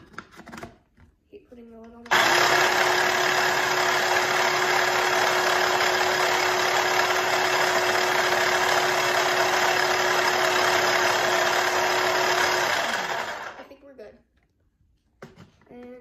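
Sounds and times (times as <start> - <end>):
electric food chopper humming: 2.1 - 13.7.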